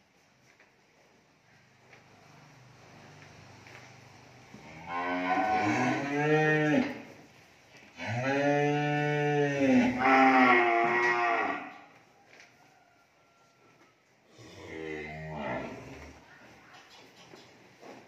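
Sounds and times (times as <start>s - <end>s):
cattle mooing: 4.6s - 7.0s, 8.0s - 11.8s, 14.4s - 16.2s.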